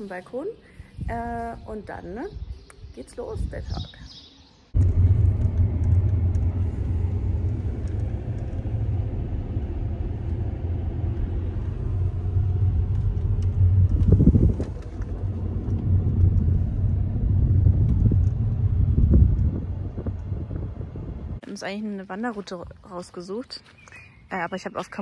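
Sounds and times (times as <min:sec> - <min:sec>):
car engine and road noise: 0:04.7 - 0:21.4.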